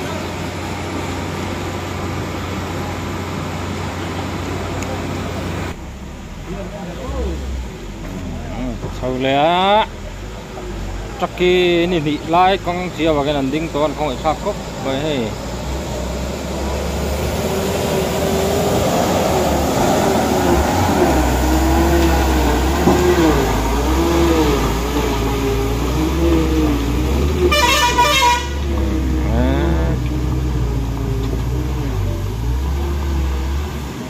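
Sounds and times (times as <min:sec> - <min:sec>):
vehicle engine revving: 0:00.0 - 0:34.0
horn blast: 0:27.4 - 0:30.1.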